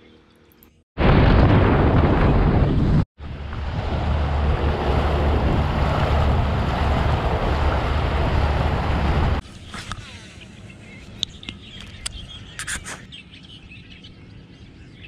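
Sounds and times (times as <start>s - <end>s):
wind rush on microphone: 1.0s - 10.0s
outboard motor drone: 3.2s - 10.7s.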